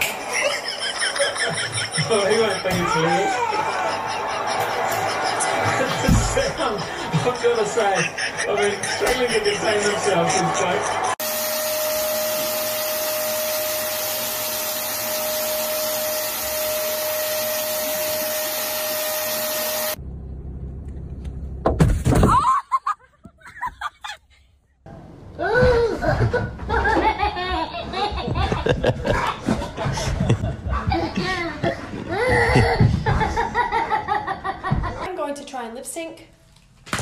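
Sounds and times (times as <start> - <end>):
voices and laughter: 0.1 - 11.2
baby laughing: 0.2 - 11.2, 25.4 - 35.0
loud cry: 2.7 - 6.0
vacuum cleaner running: 11.1 - 20.0.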